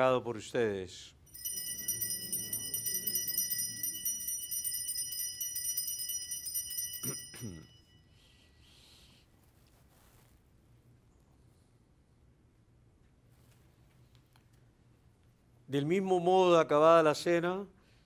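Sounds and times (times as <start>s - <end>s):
small bells jingling: 1.3s - 8.1s.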